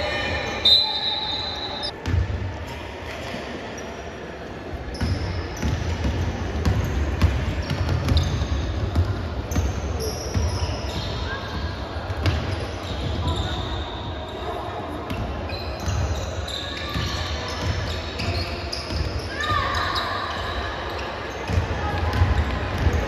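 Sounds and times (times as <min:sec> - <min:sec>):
shoe squeaks: 0:00.4 - 0:01.9, 0:07.6 - 0:08.8, 0:09.5 - 0:11.7, 0:12.4 - 0:21.4
basketball bouncing on court: 0:04.9 - 0:13.5, 0:21.5 - 0:23.0.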